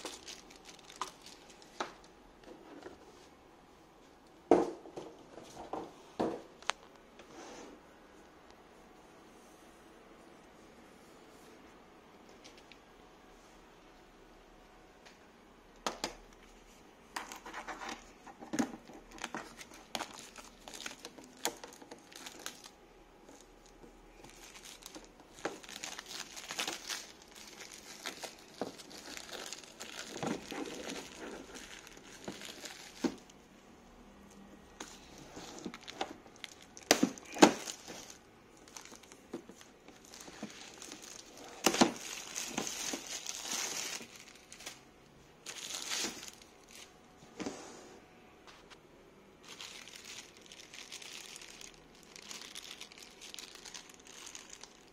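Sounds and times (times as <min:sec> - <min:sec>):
plastic wrapping crinkling: 0:00.0 - 0:02.9, 0:15.9 - 0:33.5, 0:34.8 - 0:44.8, 0:45.4 - 0:47.0, 0:49.4 - 0:54.9.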